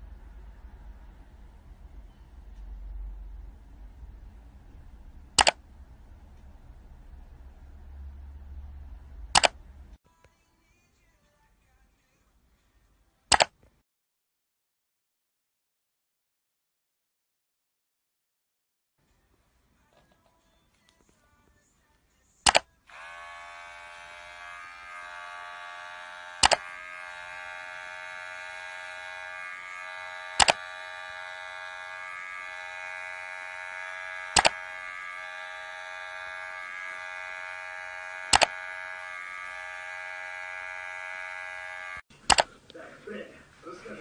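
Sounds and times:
loud sharp click: 5.4 - 5.6, 9.4 - 9.6, 13.3 - 13.5, 26.4 - 26.6, 30.4 - 30.6, 34.4 - 34.6, 38.3 - 38.5, 42.3 - 42.5
electric clippers buzzing: 22.9 - 42.1.

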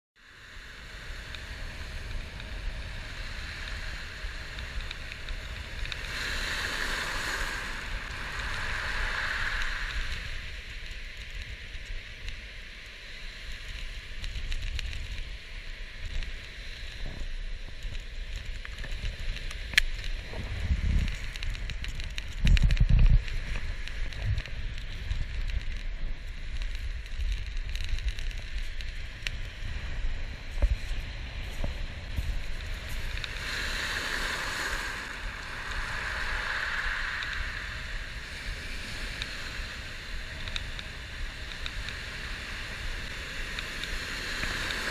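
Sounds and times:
surf on gravel beach: 0.2 - 44.9
wind buffeting microphone: 13.9 - 44.9.

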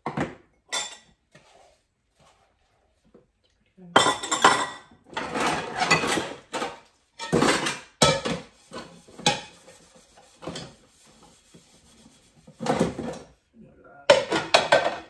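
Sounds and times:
dishes knocking and clattering: 0.0 - 1.1, 4.0 - 9.7, 12.5 - 13.3, 14.1 - 15.0
brush scrubbing dishes: 5.2 - 13.3.

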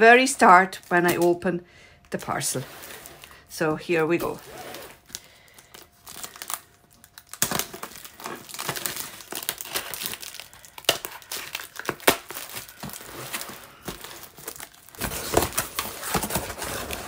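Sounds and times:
packing tape and plastic tearing: 4.1 - 17.0.

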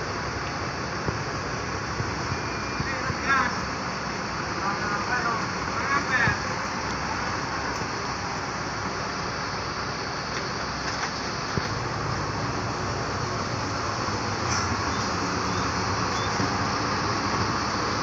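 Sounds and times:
diesel bus engine idling: 0.0 - 18.0.

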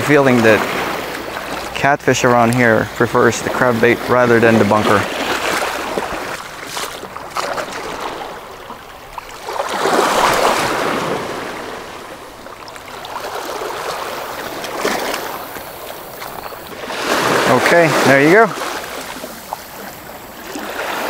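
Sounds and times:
small waves washing ashore: 0.0 - 21.0.

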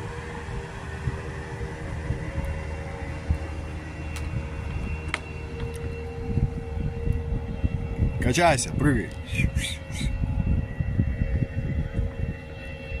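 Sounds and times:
distant motorboat engine droning: 0.0 - 13.0
wind on microphone: 0.0 - 13.0.

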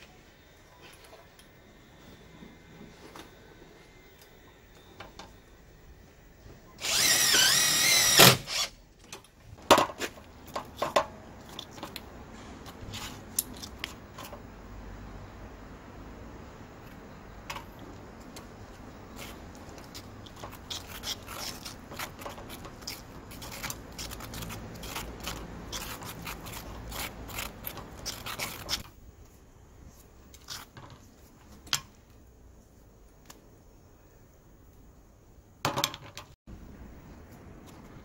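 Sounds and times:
spatula scraping metal bowl: 19.2 - 28.8.

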